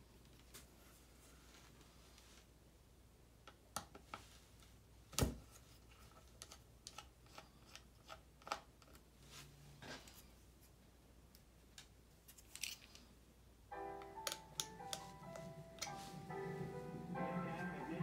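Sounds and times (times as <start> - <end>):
screwdriver clicks and taps: 14.2 - 15.1.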